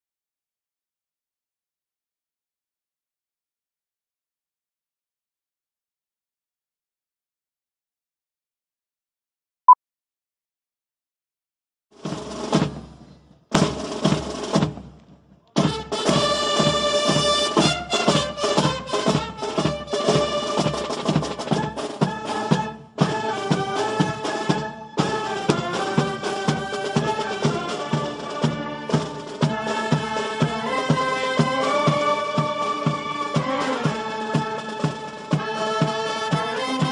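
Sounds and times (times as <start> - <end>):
drumming bursts: 12.0 - 36.9
band playing: 15.6 - 36.9.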